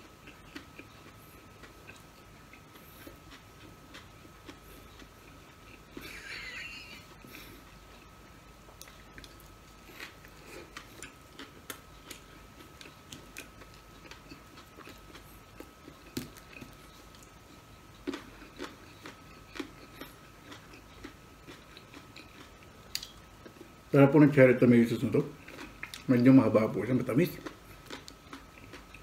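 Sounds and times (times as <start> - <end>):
wet chewing mouth sounds: 0.0 - 6.1, 8.7 - 23.7, 25.3 - 26.2, 27.3 - 29.0.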